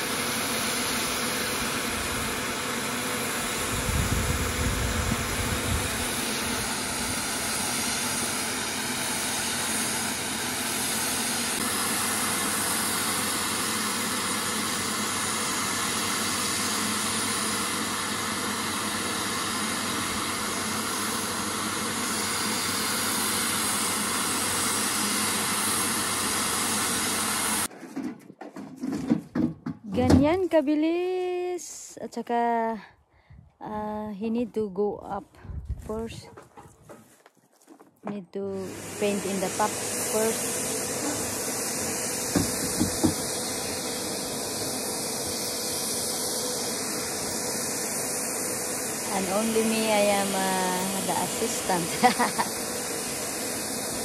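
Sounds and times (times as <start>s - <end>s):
electric paint sprayer hissing: 0.0s - 27.7s, 38.5s - 54.0s.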